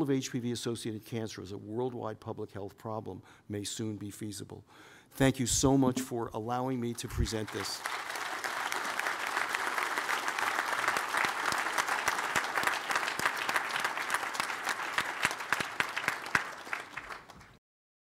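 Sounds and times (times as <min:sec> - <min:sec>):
audience applauding: 0:07.3 - 0:17.6.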